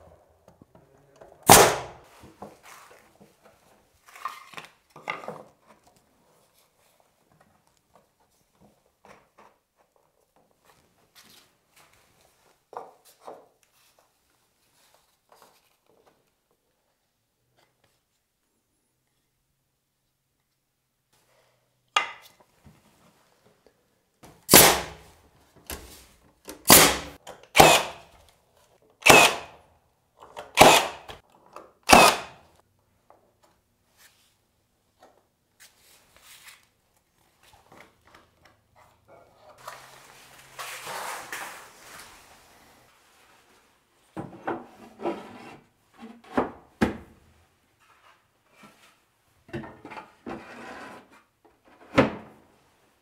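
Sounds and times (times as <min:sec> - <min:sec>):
nail gun firing: 0:01.4 - 0:02.0, 0:24.5 - 0:25.0, 0:26.6 - 0:28.1, 0:29.0 - 0:29.6, 0:30.4 - 0:31.2, 0:31.8 - 0:32.4
rustling handling noise: 0:02.0 - 0:16.5, 0:33.8 - 0:44.2.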